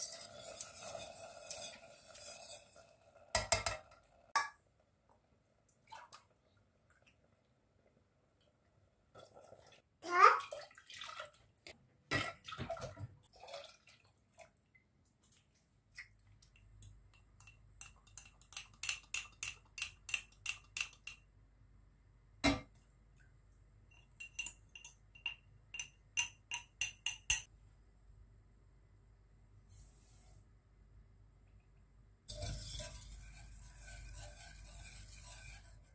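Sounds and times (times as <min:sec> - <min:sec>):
metal spoon clinking glass: 0:23.9 - 0:27.5.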